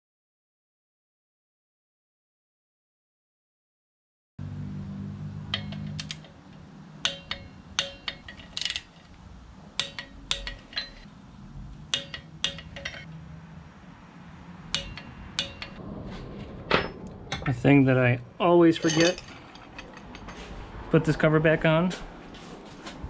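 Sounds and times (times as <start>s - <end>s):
metal tools clinking: 5.5s - 9.2s, 9.8s - 11.1s, 11.9s - 13.1s, 14.8s - 15.8s, 18.6s - 20.6s.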